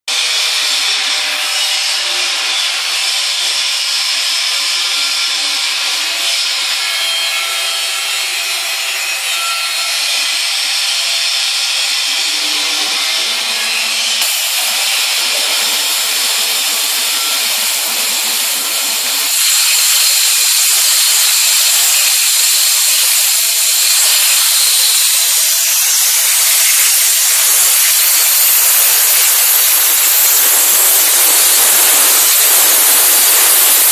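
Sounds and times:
waterjet cutter hissing: 0:12.0 - 0:33.9.

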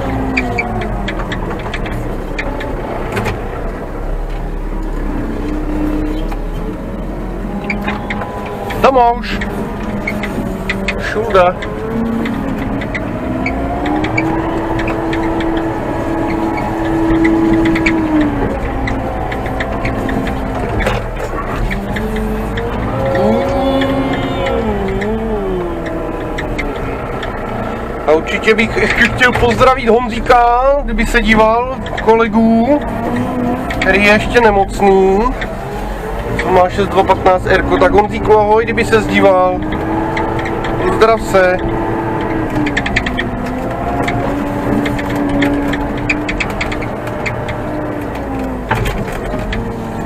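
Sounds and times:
diesel engine running: 0:00.0 - 0:50.0
machine clicks and rattles: 0:25.8 - 0:50.0.

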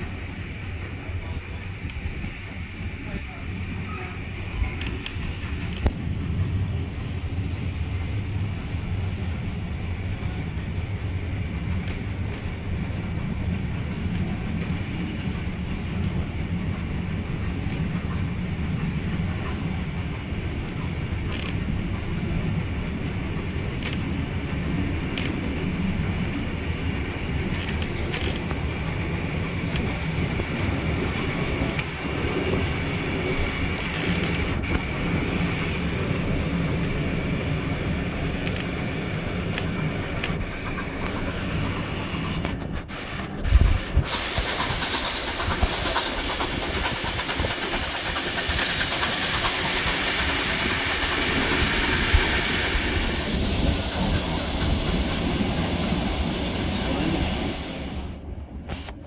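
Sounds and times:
train wheels rumbling on track: 0:00.0 - 0:59.0
sharp clicks and rattles: 0:42.4 - 0:52.6.

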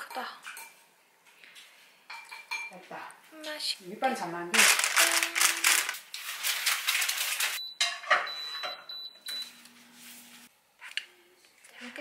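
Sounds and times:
fish rustling on paper: 0:04.6 - 0:07.6.

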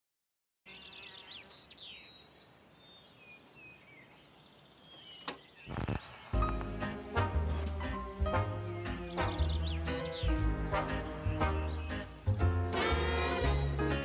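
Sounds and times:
birds chirping and calling: 0:00.7 - 0:14.0
record stylus click and crackle: 0:05.3 - 0:06.7
music: 0:06.4 - 0:14.0.

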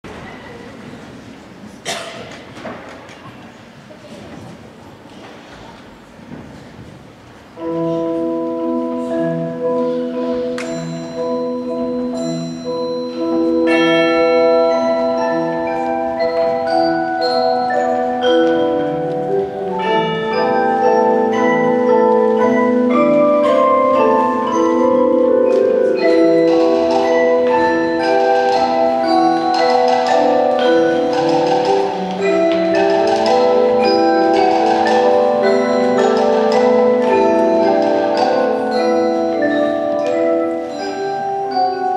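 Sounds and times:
mallet-keyboard chords: 0:07.5 - 0:41.9
drum strikes: 0:25.4 - 0:38.6.

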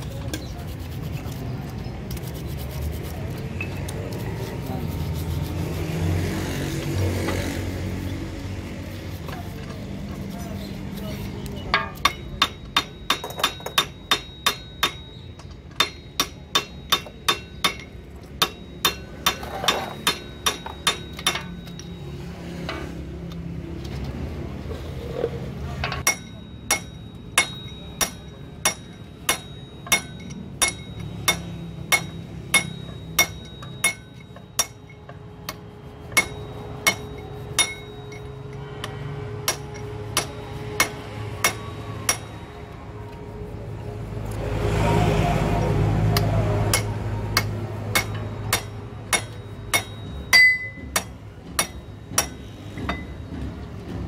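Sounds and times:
hammer striking metal: 0:11.7 - 0:23.0, 0:25.8 - 0:42.6, 0:46.2 - 0:54.0.

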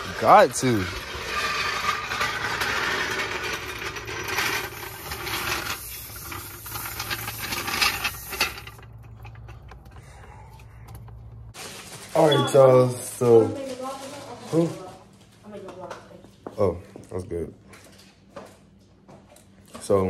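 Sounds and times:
air compressor rattle and hum: 0:00.0 - 0:11.6.

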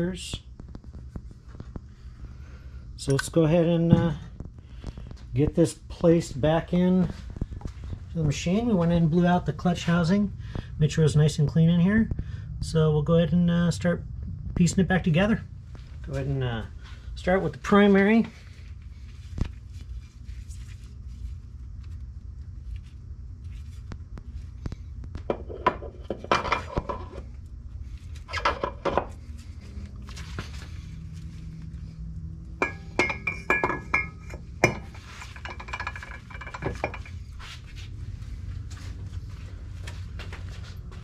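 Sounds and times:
low hum: 0:00.0 - 0:41.0
metal clinks and scrapes: 0:32.6 - 0:37.4.

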